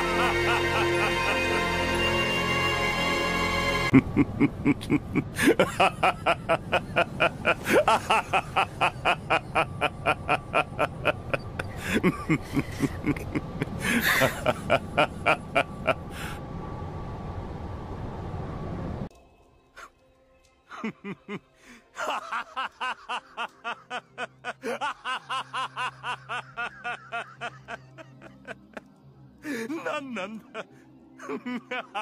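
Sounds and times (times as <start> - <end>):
man laughing: 0.0 - 1.8, 3.9 - 16.4, 20.7 - 32.0.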